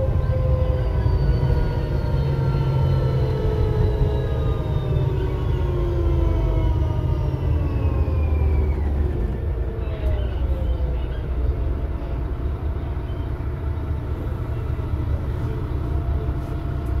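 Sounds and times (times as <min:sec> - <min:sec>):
bus whine falling in pitch: 0:00.0 - 0:10.8
low bus engine rumble: 0:00.0 - 0:17.0.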